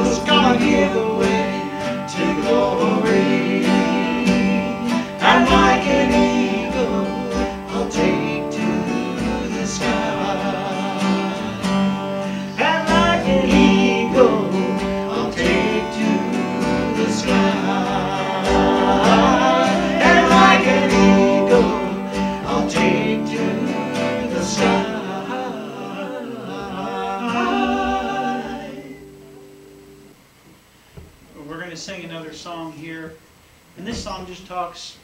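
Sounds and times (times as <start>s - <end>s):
man singing: 0.0s - 29.0s
acoustic guitars strumming: 0.0s - 31.2s.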